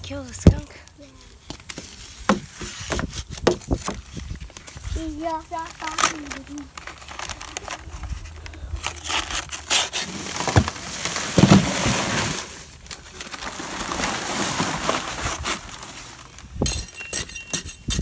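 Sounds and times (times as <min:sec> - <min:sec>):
paper bag rustling: 0:01.7 - 0:16.6
hand tool scraping lumps: 0:05.6 - 0:18.0.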